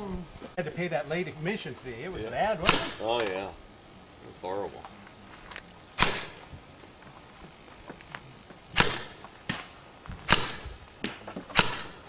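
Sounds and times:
gunshots with echo: 0:02.6 - 0:03.0, 0:06.0 - 0:06.4, 0:08.8 - 0:09.2.

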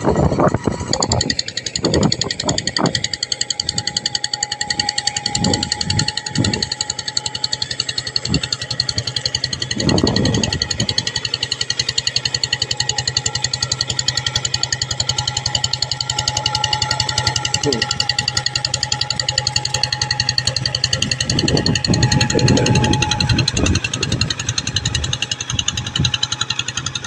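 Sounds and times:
diesel engine chugging: 0:00.0 - 0:27.0.

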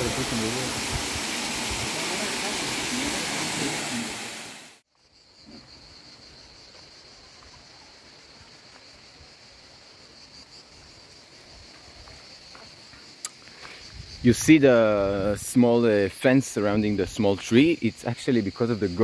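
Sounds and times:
waterfall rushing into pool: 0:00.0 - 0:04.8.

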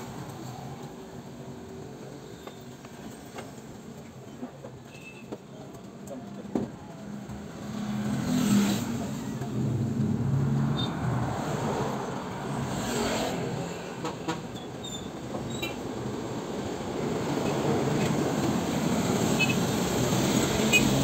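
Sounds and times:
traffic background: 0:00.0 - 0:21.0.

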